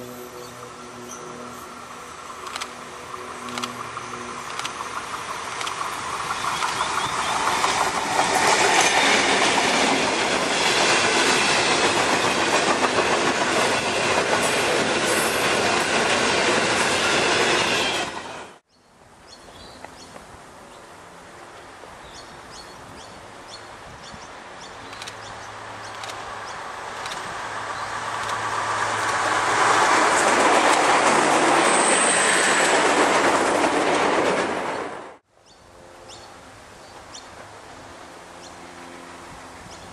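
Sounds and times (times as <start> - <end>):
railcar engine drone: 0.0 - 39.9
freight train wheels clattering: 3.8 - 18.0
train wheels squealing: 31.5 - 32.8.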